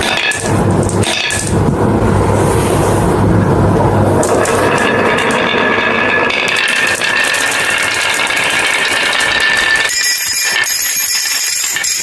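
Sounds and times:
glass marbles rattling down wooden track: 4.2 - 12.0
marbles clinking into glass bowl: 4.2 - 12.0.

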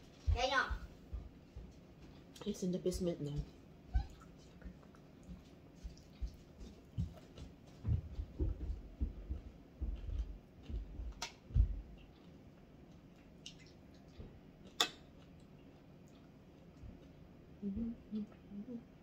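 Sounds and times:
soft low thuds: 6.2 - 12.0.

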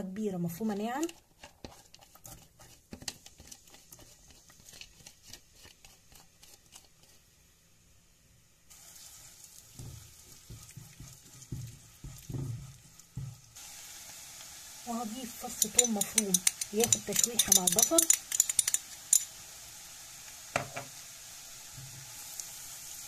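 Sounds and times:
onion sizzling: 0.0 - 23.0
spatula knocking against pot: 9.8 - 13.4, 15.6 - 18.8
onion dropping into oil: 20.5 - 21.0.

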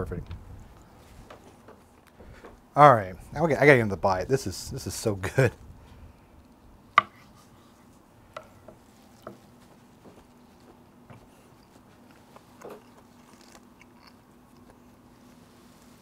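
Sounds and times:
faint steady hum: 0.0 - 16.0
soft chewing: 6.0 - 16.0.

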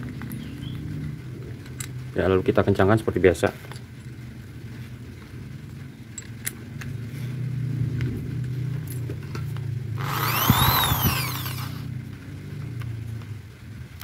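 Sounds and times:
steady low hum: 9.9 - 12.2
electric drill whining: 10.0 - 11.9.

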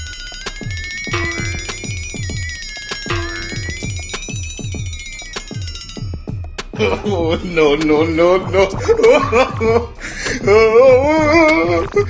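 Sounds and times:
wavering high synth tone: 0.0 - 7.4
falling bass notes: 1.1 - 2.4.

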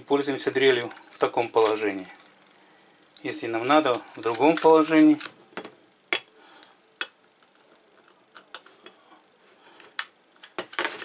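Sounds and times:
metal parts clinking and knocking: 3.2 - 5.4, 9.8 - 11.0.

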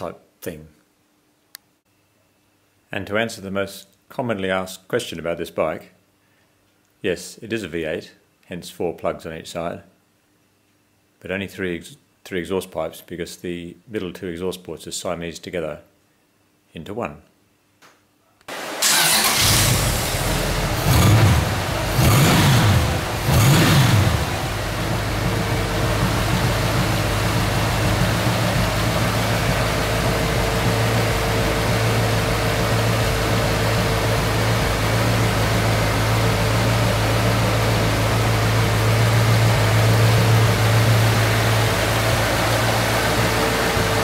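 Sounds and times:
engine starting and idling: 18.5 - 44.0
engine revving blips: 18.8 - 37.2.

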